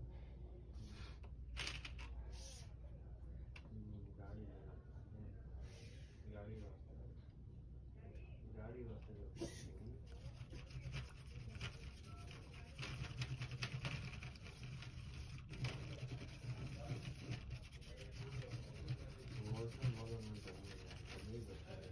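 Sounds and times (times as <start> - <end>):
scratchy rubbing on strings: 10.1 - 21.9.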